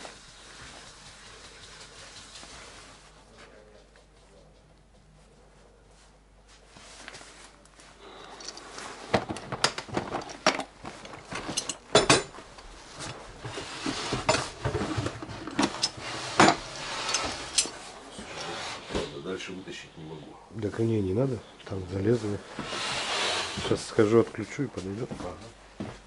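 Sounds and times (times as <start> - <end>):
hard objects clinking and rattling: 8.2 - 12.4, 14.1 - 17.8.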